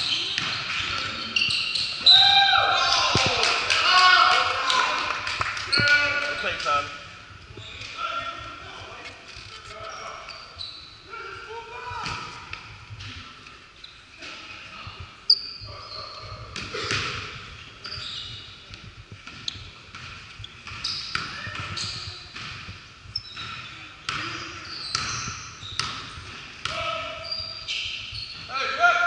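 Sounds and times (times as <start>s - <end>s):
sneakers squeaking on court: 0.0s - 2.2s, 5.6s - 6.2s, 7.5s - 8.0s, 9.0s - 11.1s, 15.3s - 28.5s.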